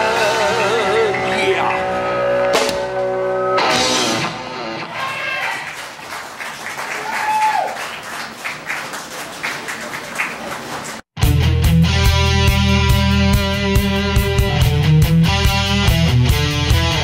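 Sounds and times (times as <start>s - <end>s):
rock band final chord: 0.0s - 4.8s, 11.2s - 17.0s
crowd clapping and cheering: 4.8s - 11.2s.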